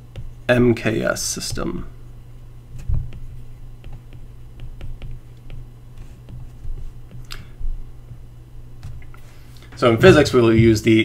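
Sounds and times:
steady low hum: 0:00.0 - 0:11.0
low thump: 0:02.8 - 0:03.2.

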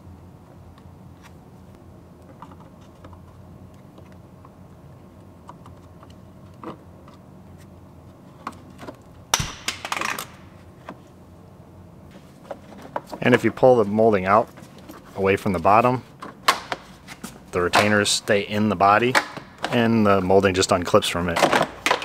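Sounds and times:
loud plastic snap: 0:09.3 - 0:10.5.

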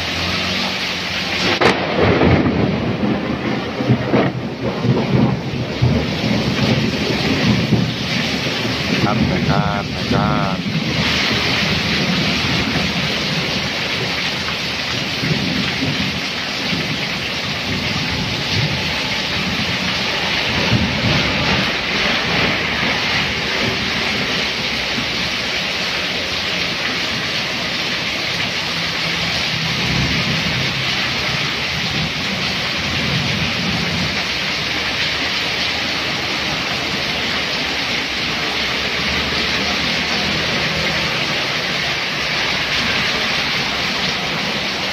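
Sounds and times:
heavy rain pouring: 0:00.0 - 0:44.9
vehicles splashing through water: 0:00.0 - 0:44.9
low rumbles: 0:01.1 - 0:44.9.

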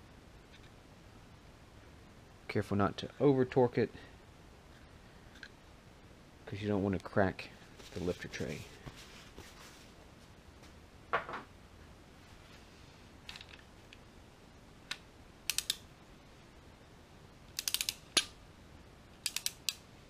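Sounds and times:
torque wrench ratchet clicking: 0:15.5 - 0:15.8, 0:17.6 - 0:18.3, 0:19.2 - 0:19.8.

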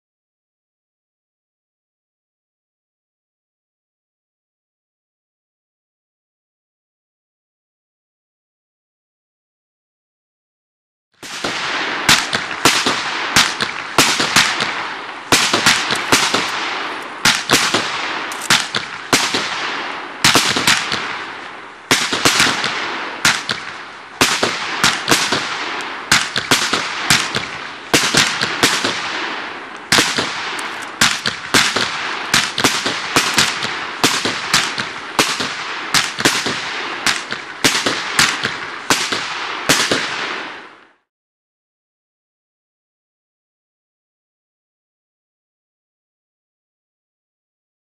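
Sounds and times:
firework bangs: 0:11.2 - 0:40.8.

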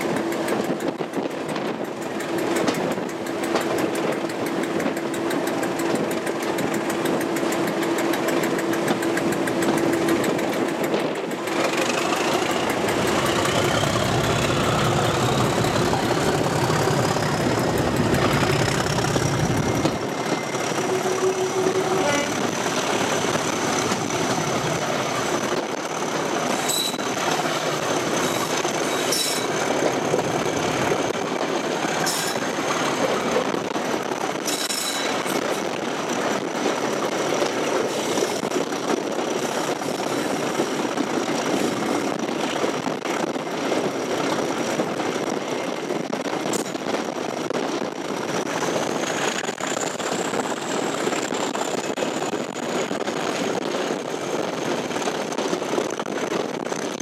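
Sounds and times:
sharp clicks from track: 0:00.0 - 0:43.6
diesel locomotive engine running: 0:00.0 - 0:57.0.

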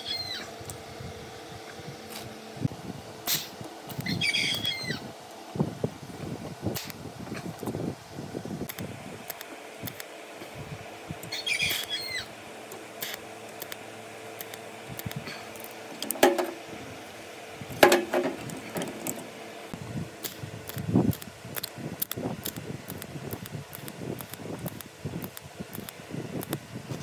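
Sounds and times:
steady hum: 0:00.0 - 0:27.0
brief squeak: 0:04.0 - 0:05.0, 0:11.3 - 0:12.3
metal clinks and knocks: 0:16.0 - 0:16.6, 0:17.8 - 0:19.3.

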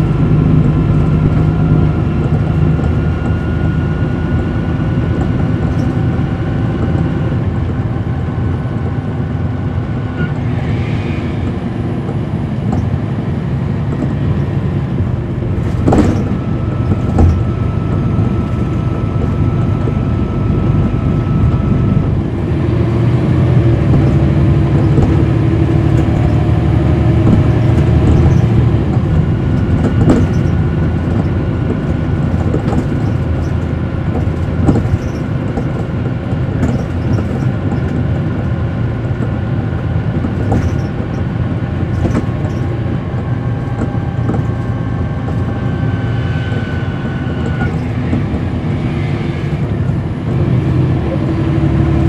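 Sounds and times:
bus engine and road rumble: 0:00.0 - 0:52.0
rattles and knocks: 0:13.9 - 0:20.0, 0:23.6 - 0:42.8.

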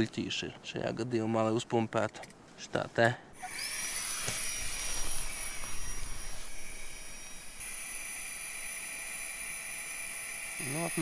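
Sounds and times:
mini air pump whining: 0:03.4 - 0:11.0.

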